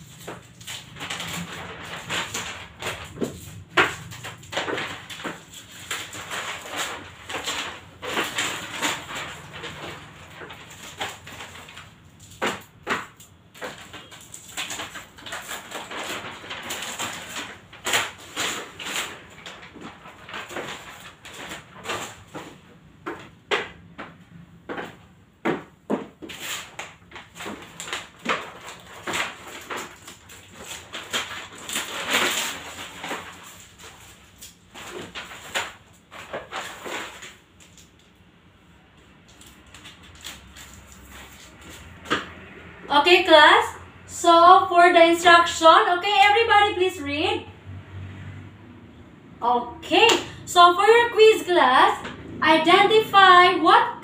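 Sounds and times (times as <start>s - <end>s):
paper rustling and crinkling: 0.0s - 42.6s.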